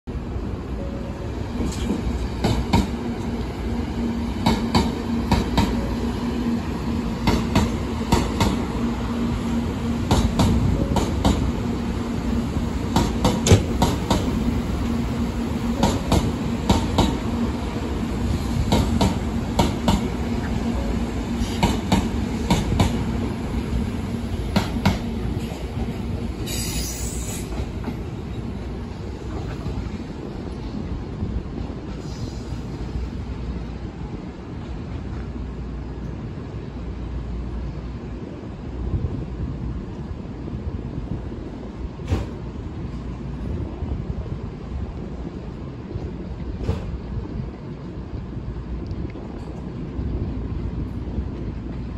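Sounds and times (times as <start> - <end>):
train rumble and hum: 0.0 - 51.9
short hiss: 26.5 - 27.5.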